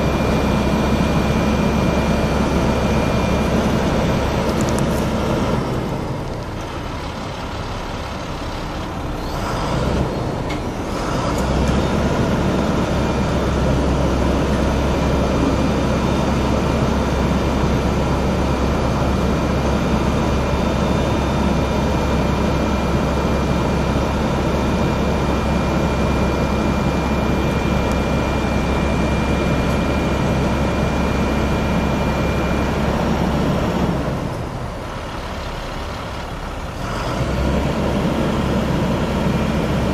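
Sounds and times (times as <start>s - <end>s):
diesel truck engine running: 0.0s - 39.9s
faint high whine: 18.5s - 34.4s.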